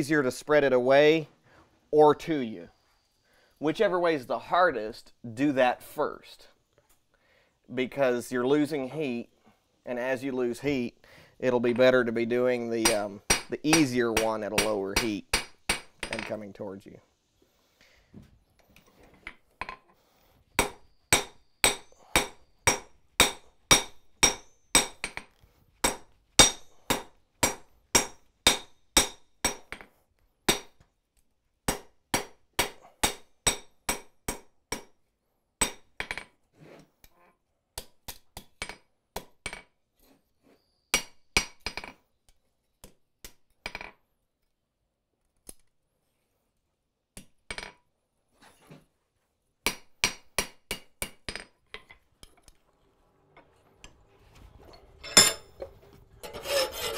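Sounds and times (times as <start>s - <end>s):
hammer striking steel on anvil: 12.8s - 16.3s, 20.6s - 29.8s, 30.5s - 30.8s, 31.7s - 34.9s, 35.6s - 35.9s, 55.0s - 56.9s.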